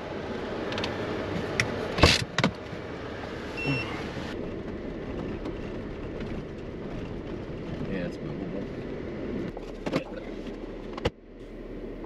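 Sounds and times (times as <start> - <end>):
engine and tyre noise: 0.0 - 12.0.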